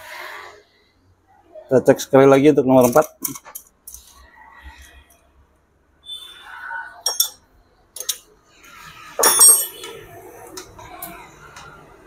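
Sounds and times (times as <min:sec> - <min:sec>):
hand tools clinking: 0:07.0 - 0:07.4, 0:08.0 - 0:08.2, 0:09.2 - 0:09.9
loud ringing wrench clank: 0:07.0 - 0:07.4, 0:09.2 - 0:09.9.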